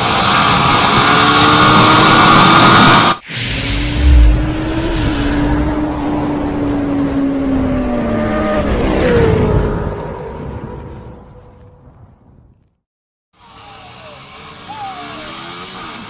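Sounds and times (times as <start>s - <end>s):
vehicle engine at high revs: 0.0s - 9.5s, 13.7s - 16.0s
deep boom: 3.2s - 6.2s.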